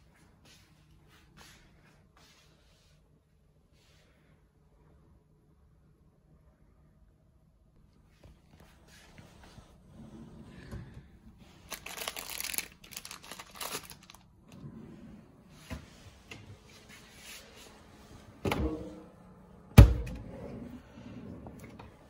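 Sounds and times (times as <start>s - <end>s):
rustling of plastic wrapping: 11.4s - 14.5s.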